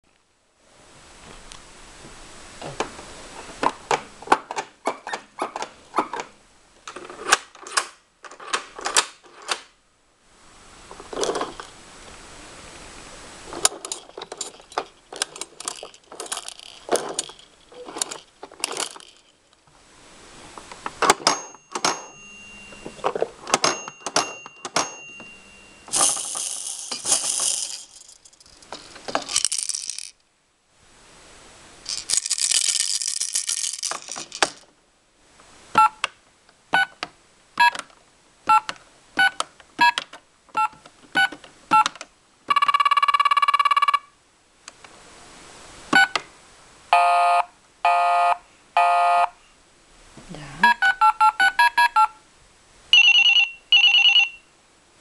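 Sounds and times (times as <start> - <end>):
plastic toy clicking and clattering: 11.1 - 11.7, 13.6 - 19.3, 25.9 - 30.2, 31.9 - 34.7
beads rattling: 13.8 - 19.4, 25.9 - 30.2, 31.8 - 34.6
short ringing tones: 21.3 - 23.1, 23.7 - 26.7, 52.9 - 54.5.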